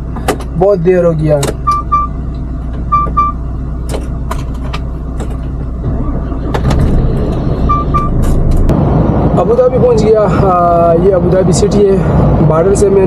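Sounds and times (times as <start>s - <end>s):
short beeps: 1.6s - 2.1s, 2.9s - 3.4s, 7.6s - 8.2s.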